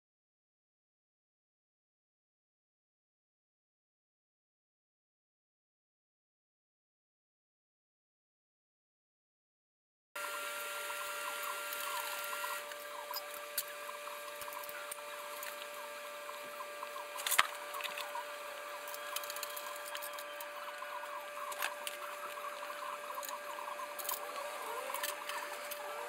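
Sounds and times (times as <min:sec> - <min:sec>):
steady electrical hum: 0:10.2 - 0:26.0
small clicks and squeaks: 0:10.9 - 0:26.0.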